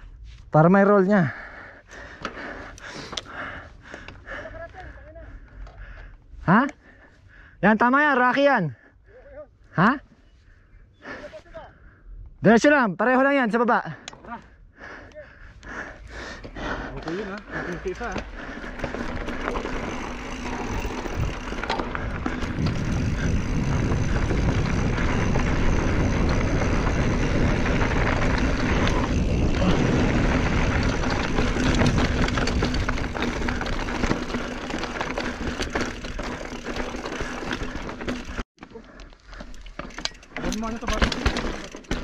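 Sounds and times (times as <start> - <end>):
bike clicks and rattles: 1.8 - 7.0, 13.9 - 42.0
bike tyres rolling over dirt and rocks: 16.4 - 42.0
wind on microphone: 18.9 - 34.2.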